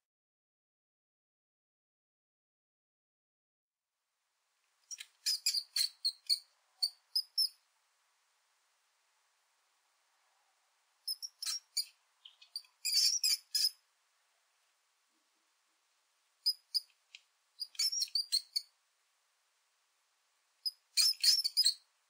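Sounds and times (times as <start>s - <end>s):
mouse squeaking: 4.9s - 7.6s, 11.1s - 13.8s, 16.4s - 17.0s, 17.6s - 18.7s, 20.6s - 21.8s.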